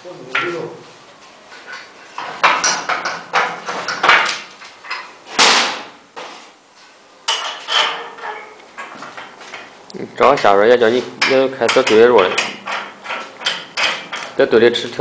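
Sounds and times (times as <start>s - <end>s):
metal clanking: 7.3s - 14.6s.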